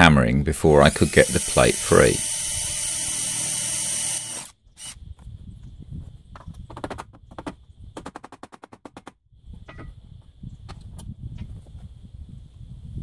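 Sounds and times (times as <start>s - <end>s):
cordless drill running: 0.8s - 5.0s.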